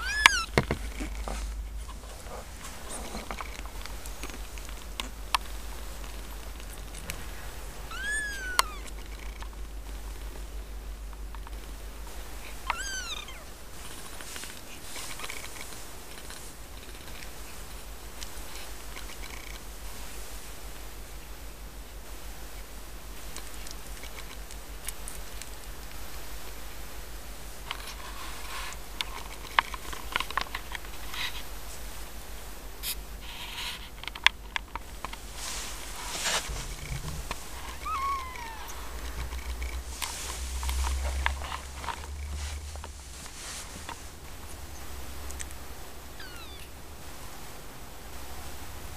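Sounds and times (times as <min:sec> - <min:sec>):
kitten mewing: 0:00.0 - 0:01.1, 0:07.8 - 0:09.4, 0:12.6 - 0:13.5, 0:36.6 - 0:39.6, 0:46.1 - 0:46.8
cats purring: 0:00.0 - 0:47.5
soft rustles against blanket: 0:00.0 - 0:48.9.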